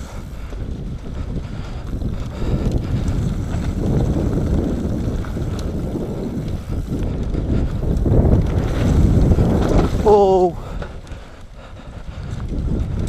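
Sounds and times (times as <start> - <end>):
bike clicking: 0.0 - 13.0
tyres on loose dirt: 0.0 - 13.0
wind rushing over microphone: 0.0 - 13.0.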